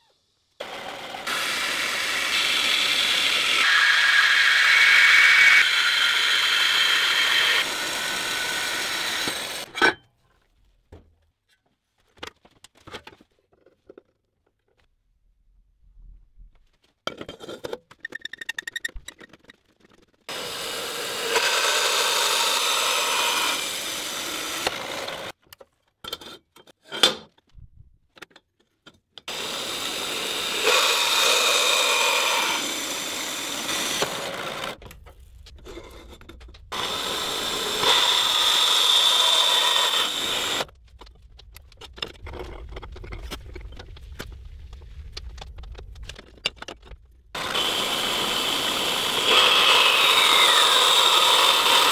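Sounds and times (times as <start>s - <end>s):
power tool whining on steel: 0.6s - 9.8s, 20.3s - 25.4s, 29.3s - 34.8s, 36.7s - 40.7s, 47.4s - 51.9s
clicks and handling knocks: 40.8s - 47.3s.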